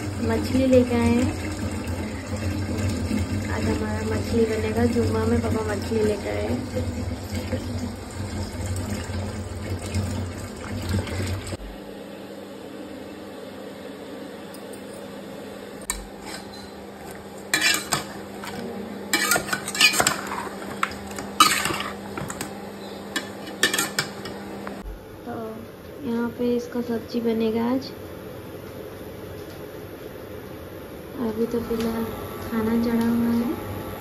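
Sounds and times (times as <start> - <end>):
utensil scraping steel bowl: 15.9 - 22.5, 23.1 - 24.3.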